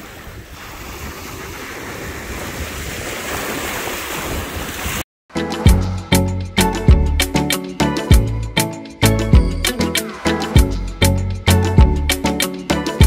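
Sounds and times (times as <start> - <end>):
wind rumbling on microphone: 0.0 - 5.0
music: 5.3 - 13.0.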